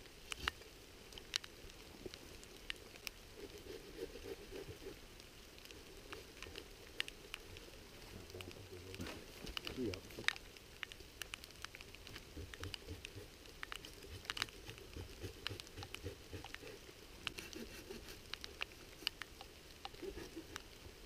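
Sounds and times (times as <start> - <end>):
raindrops tapping on camera housing: 5.6 - 21.0.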